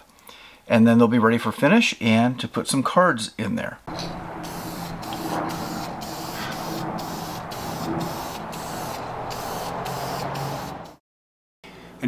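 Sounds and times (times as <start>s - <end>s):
aerosol spray can hissing: 3.9s - 11.0s.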